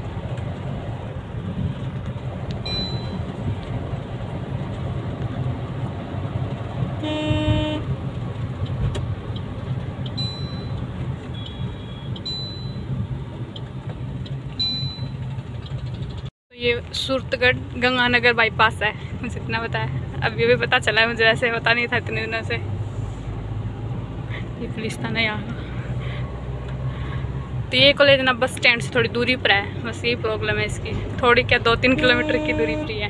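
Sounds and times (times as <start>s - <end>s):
road and engine rumble in car: 0.0s - 33.0s
vehicle horn honk: 7.0s - 7.9s, 31.8s - 33.0s.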